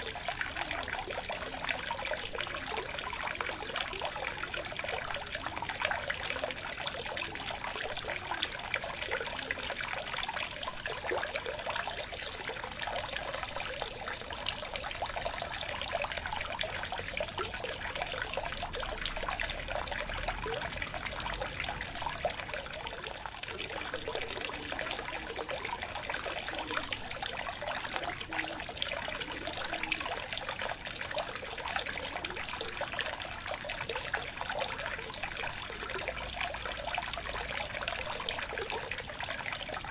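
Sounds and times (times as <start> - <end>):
aquarium water trickling: 0.0 - 39.9.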